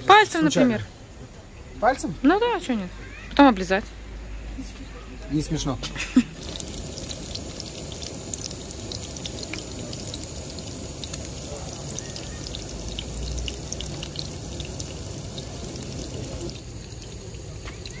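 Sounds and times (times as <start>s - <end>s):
fritters sizzling in hot oil: 6.1s - 18.0s.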